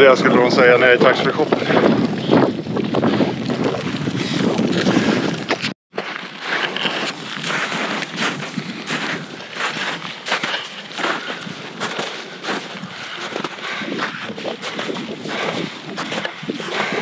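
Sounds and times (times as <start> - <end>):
wind buffeting microphone: 0.0 - 5.8, 6.9 - 17.0
wind: 0.0 - 17.0
footsteps in snow: 2.2 - 17.0.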